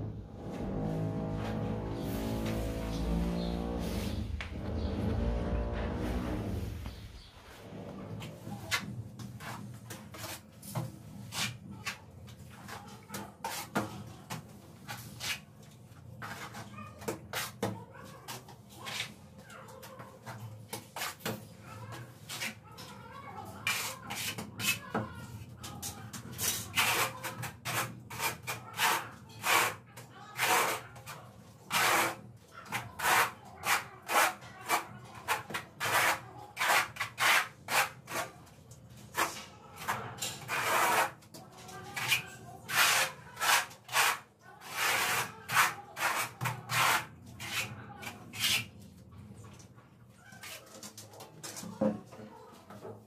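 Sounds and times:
trowel scraping adhesive on wall: 0:08.2 - 0:19.2, 0:19.8 - 0:25.1, 0:25.7 - 0:48.8.

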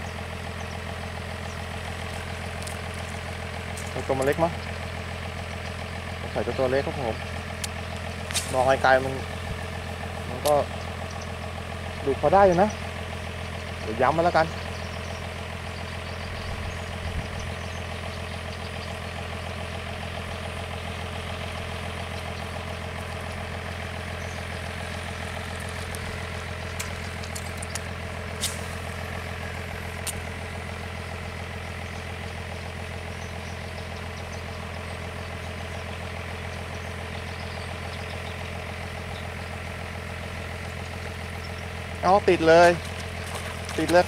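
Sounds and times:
engine idling: 0:00.0 - 0:44.0
sharp clicks: 0:26.7 - 0:28.6.

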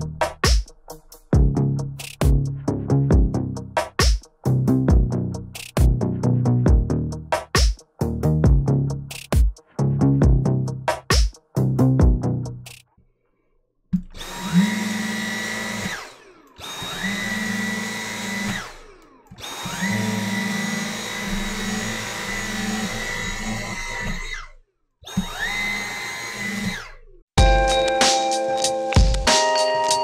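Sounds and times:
handheld vacuum motor whine: 0:14.2 - 0:27.0.

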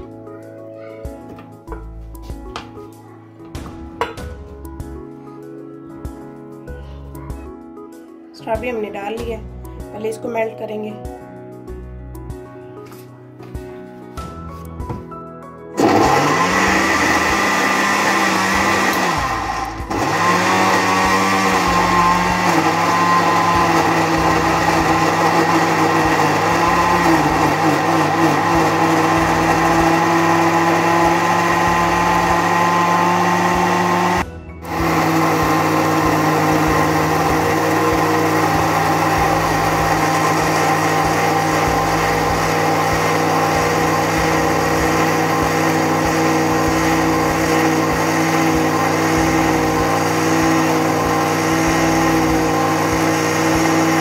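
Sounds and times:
electric blender running: 0:15.8 - 0:54.0.

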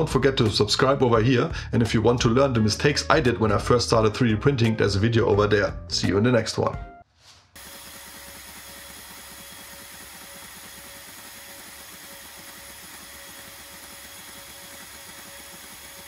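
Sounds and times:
fan whir: 0:07.6 - 0:16.0
stepper motors buzzing: 0:07.6 - 0:16.0.

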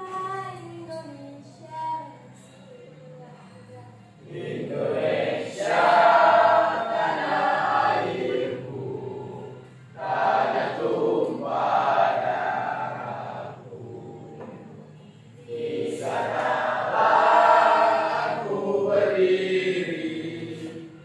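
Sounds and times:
students singing in unison: 0:04.2 - 0:21.0.

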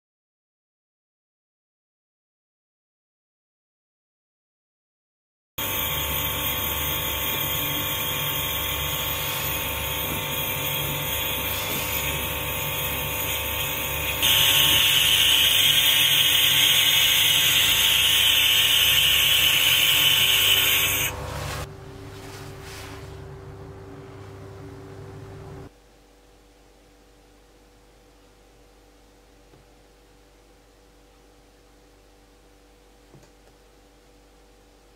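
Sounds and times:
gas torch hissing: 0:05.6 - 0:21.7.

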